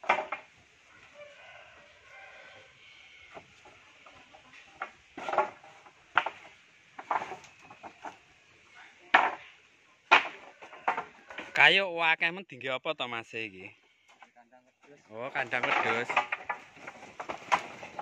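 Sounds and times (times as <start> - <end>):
wooden planks clattering: 0.0 - 0.7, 3.3 - 11.8, 14.9 - 18.0.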